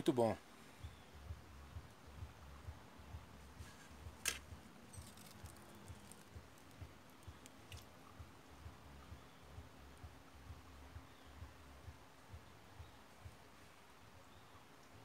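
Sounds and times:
faint low pulsing: 0.4 - 15.0
fishing tackle clicks and taps: 4.1 - 8.0.

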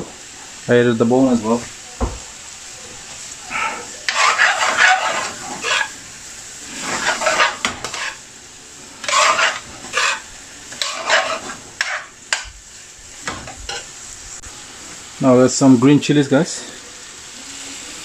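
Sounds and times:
low sizzle: 0.0 - 18.0
metal spoon scraping frying pan: 3.6 - 6.0, 6.7 - 8.2, 9.0 - 12.5.

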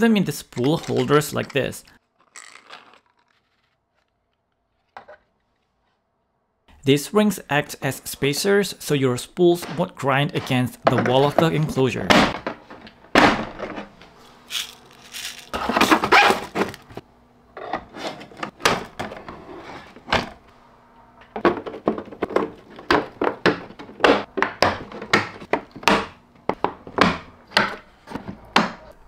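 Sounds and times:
plastic scraping: 0.5 - 5.8, 14.5 - 17.0.

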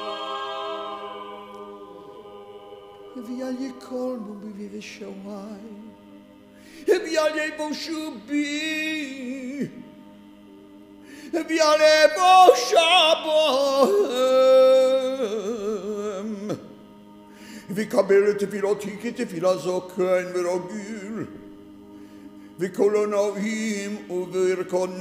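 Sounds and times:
man chanting: 3.1 - 5.9, 6.8 - 9.8, 11.3 - 16.6, 17.6 - 21.4, 22.6 - 25.0.

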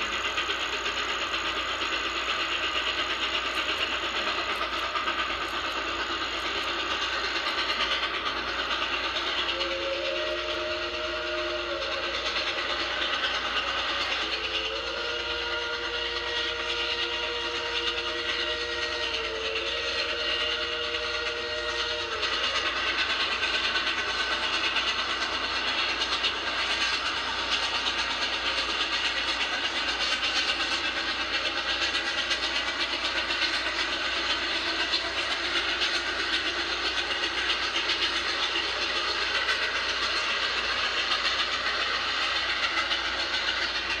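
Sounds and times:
steam locomotive passing: 0.0 - 44.0.

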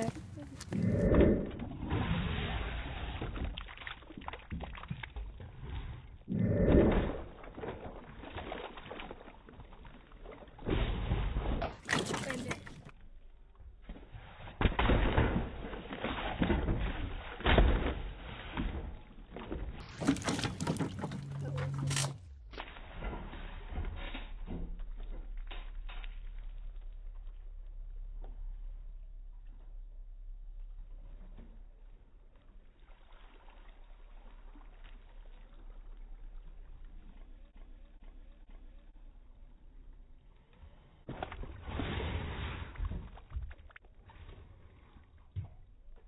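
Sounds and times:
water gushing and splashing: 0.0 - 13.0, 32.5 - 37.6.

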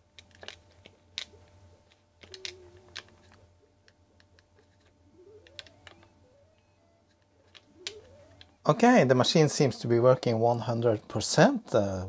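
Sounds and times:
joystick switches clicking: 2.2 - 3.4, 5.3 - 6.1, 7.5 - 8.6.

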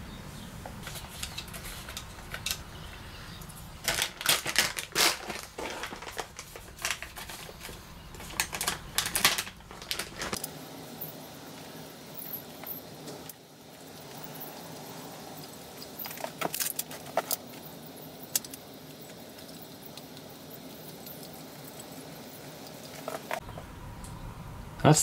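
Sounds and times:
small parts clicking and clattering: 0.8 - 2.7, 3.8 - 11.2, 15.8 - 20.1.

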